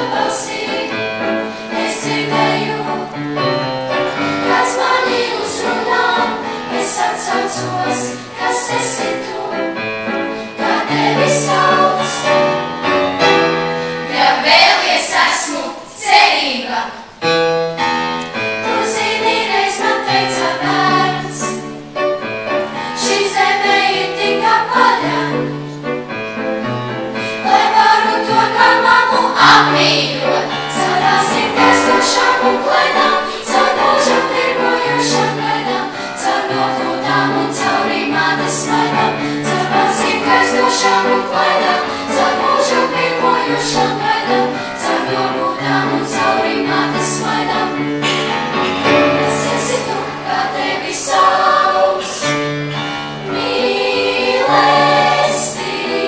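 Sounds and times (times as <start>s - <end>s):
girls choir singing: 0.0s - 17.4s, 18.3s - 56.0s
grand piano: 0.0s - 56.0s.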